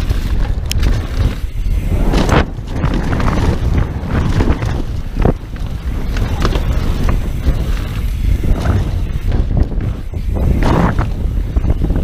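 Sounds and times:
bike rattling over dirt trail: 0.0 - 12.0
wind buffeting microphone: 0.0 - 12.0.

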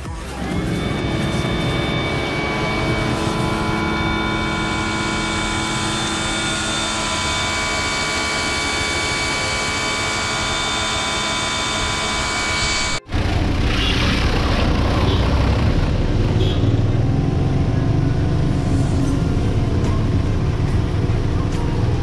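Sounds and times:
pump motor whine: 0.0 - 22.0.

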